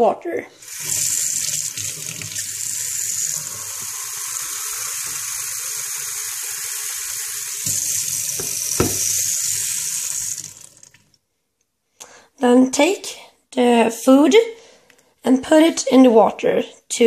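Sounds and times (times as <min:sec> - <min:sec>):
tap water running into tub: 0:00.6 - 0:11.2.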